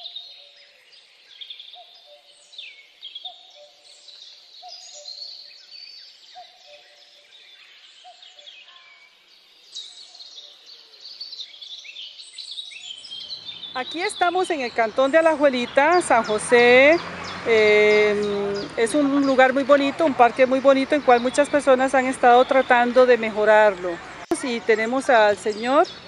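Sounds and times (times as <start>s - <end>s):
birds chirping and singing: 0.0s - 26.0s.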